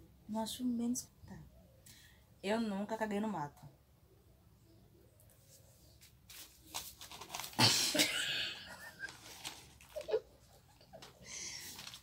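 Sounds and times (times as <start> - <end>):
woman laughing breathily: 7.6 - 11.9.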